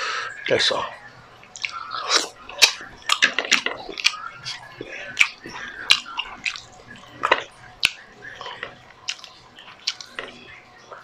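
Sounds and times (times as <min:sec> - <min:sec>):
lip smacks and mouth clicks: 0:01.4 - 0:11.0
person chewing wetly: 0:01.4 - 0:11.0.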